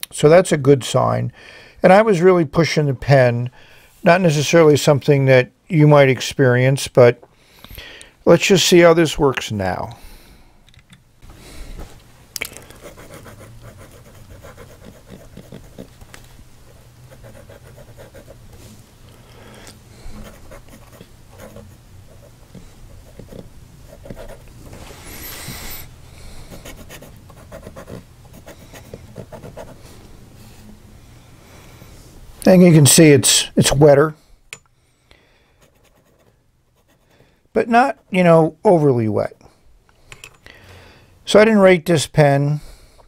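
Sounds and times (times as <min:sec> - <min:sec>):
fountain pen scratching on paper: 0:12.7 - 0:15.9, 0:17.1 - 0:18.4, 0:20.2 - 0:24.5, 0:26.5 - 0:29.8, 0:35.6 - 0:37.1.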